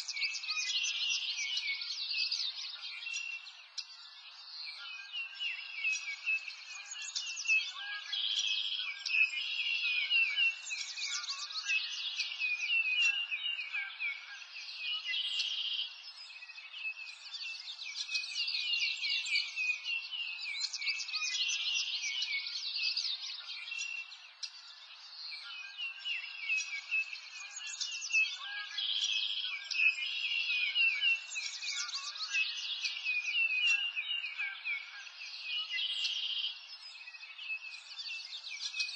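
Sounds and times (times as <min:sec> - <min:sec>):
birds chirping and trilling: 0:00.0 - 0:38.9.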